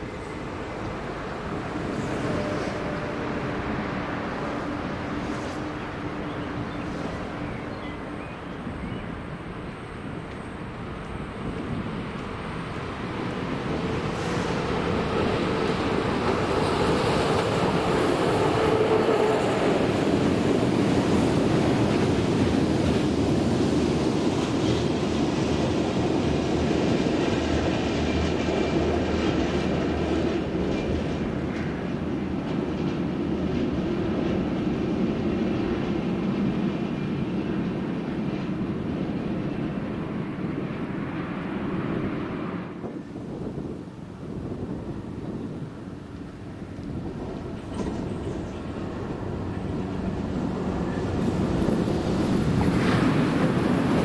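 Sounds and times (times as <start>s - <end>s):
freight train rumbling past: 0.0s - 54.0s.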